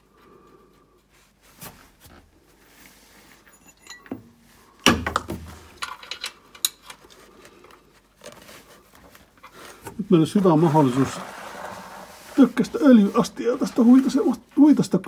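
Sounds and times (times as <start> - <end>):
metal tools clinking: 3.4 - 4.2.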